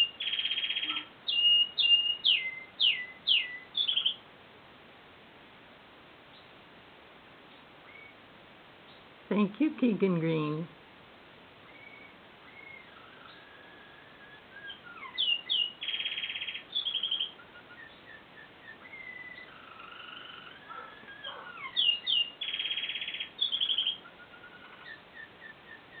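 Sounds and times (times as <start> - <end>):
fast canary trills: 0.0 - 4.2, 11.6 - 26.0
canary singing: 0.0 - 4.3, 7.5 - 8.2, 11.6 - 26.0.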